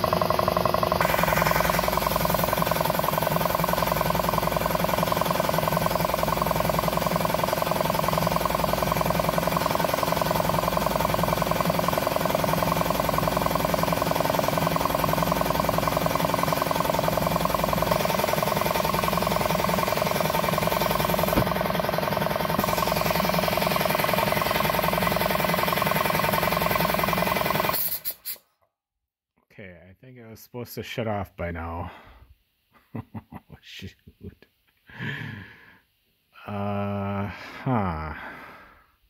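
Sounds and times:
air compressor clattering: 0.0 - 28.4.

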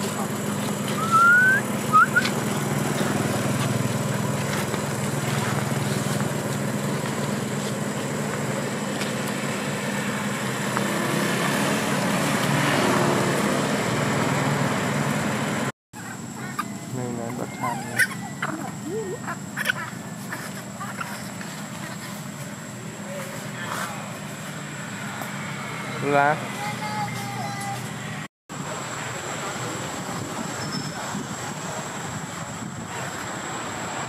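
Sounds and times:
baby monkey squealing and chirping: 16.0 - 22.0
short monkey calls: 16.0 - 22.0.

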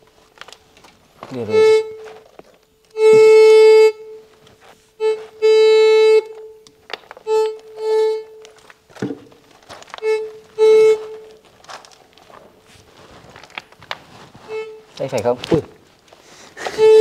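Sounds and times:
metal detector buzzing tone: 1.3 - 2.2, 2.9 - 4.3, 5.0 - 8.4, 10.0 - 11.4, 16.6 - 17.0.

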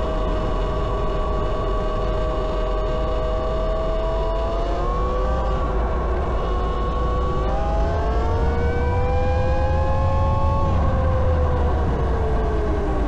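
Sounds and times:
low rumble: 6.9 - 13.0.

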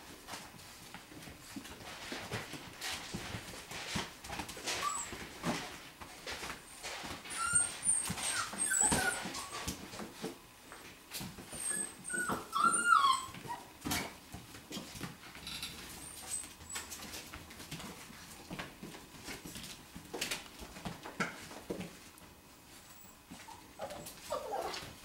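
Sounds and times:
puppies whining and squealing: 4.6 - 5.7, 6.7 - 10.0, 11.2 - 14.2, 15.8 - 17.2, 22.8 - 25.0.

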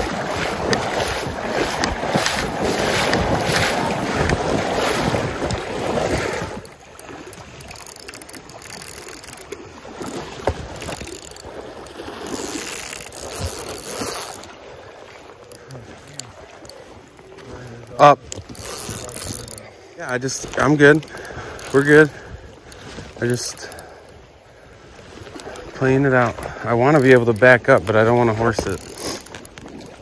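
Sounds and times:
stream water splashing: 0.0 - 30.0
sharp clicks: 5.2 - 14.4.

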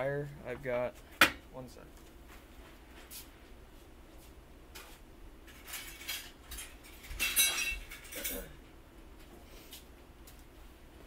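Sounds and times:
metal hardware clinking and rattling: 5.5 - 8.5.

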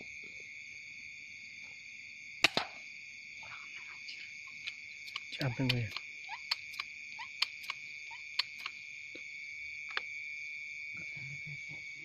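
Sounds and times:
insects droning: 0.0 - 12.0
sharp clicks: 4.5 - 8.8.

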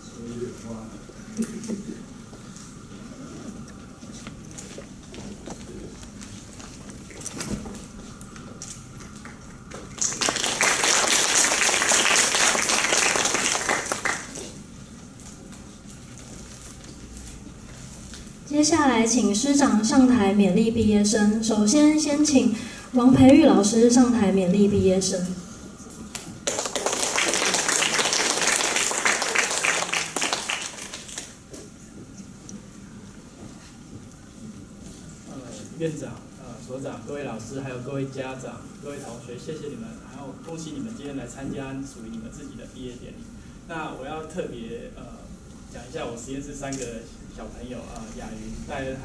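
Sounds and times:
audience applauding: 9.2 - 14.6, 26.4 - 31.4.

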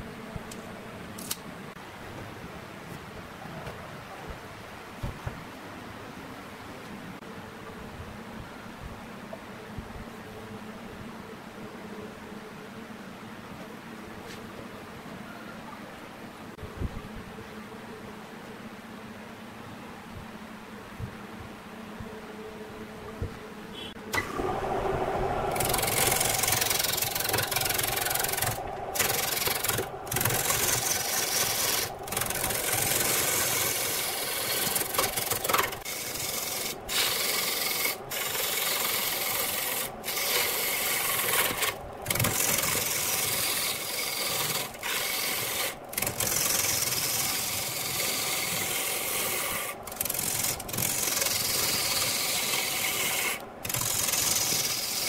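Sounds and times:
lathe tool shearing wood: 24.2 - 55.0.

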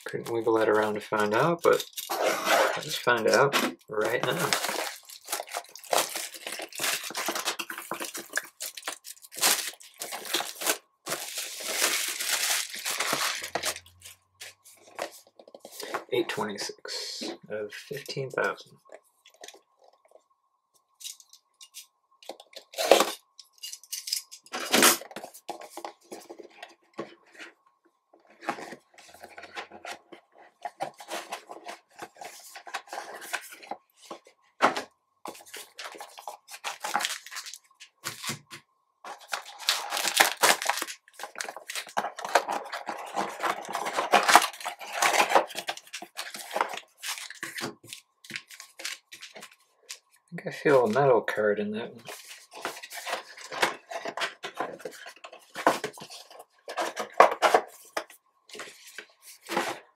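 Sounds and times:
foil packs crinkling: 0.3 - 16.4, 30.7 - 50.9.

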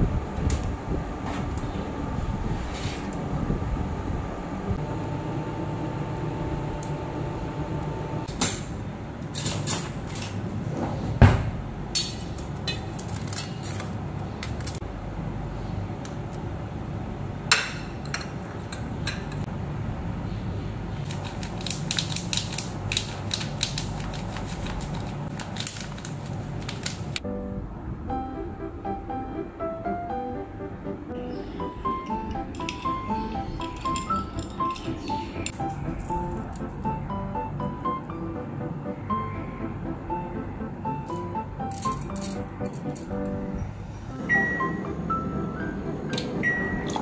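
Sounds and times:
steady low hum: 0.0 - 47.0
music: 27.2 - 47.0.

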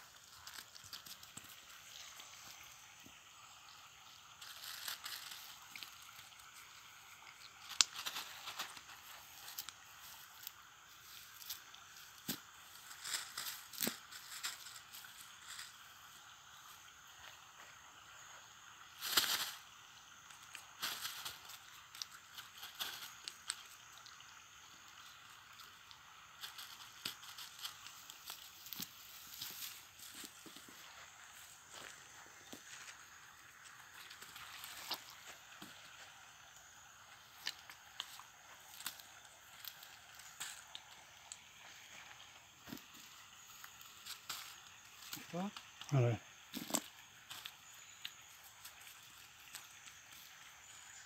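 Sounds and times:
background hiss: 0.0 - 51.0
net rustling and crackling: 4.4 - 6.7, 7.5 - 15.8, 19.0 - 19.6, 20.7 - 23.6, 26.3 - 30.8.

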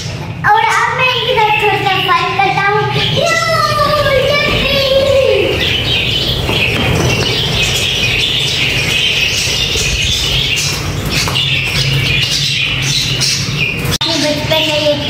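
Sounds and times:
budgerigars chattering and squawking: 0.0 - 15.0
wings flapping: 3.2 - 14.0.

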